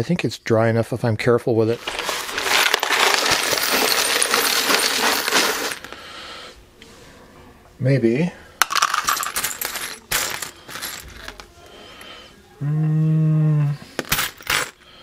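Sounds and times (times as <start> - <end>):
metal screws pouring onto bench: 1.8 - 5.9, 8.6 - 11.4, 14.0 - 14.8
screws clinking while sorted: 1.8 - 5.9, 8.6 - 11.5, 14.0 - 14.8.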